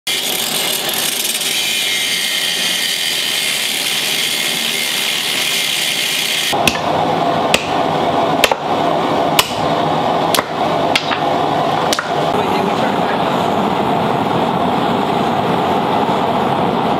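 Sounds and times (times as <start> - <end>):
angle grinder cutting steel: 0.1 - 6.6
hammer striking metal on anvil: 6.6 - 7.8, 8.4 - 8.7, 9.4 - 9.7, 10.3 - 11.3, 11.9 - 12.3.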